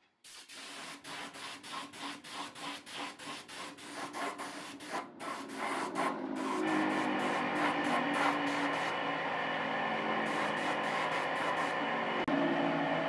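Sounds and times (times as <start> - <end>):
sandpaper rubbing on wood: 0.4 - 8.9, 10.3 - 11.8.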